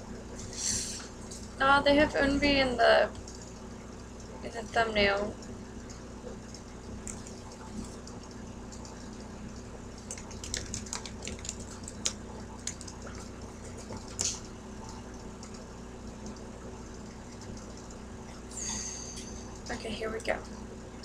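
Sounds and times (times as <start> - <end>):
low electrical hum: 0.0 - 21.0
faint clicks and ticks: 3.1 - 18.4.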